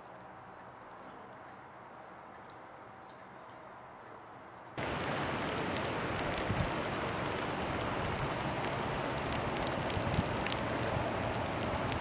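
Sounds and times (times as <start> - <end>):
outdoor background hiss: 0.0 - 12.0
faint ticks: 8.1 - 10.9.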